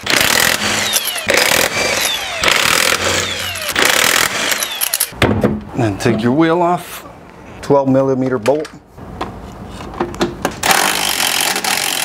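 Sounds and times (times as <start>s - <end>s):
impact wrench hammering: 0.0s - 5.3s.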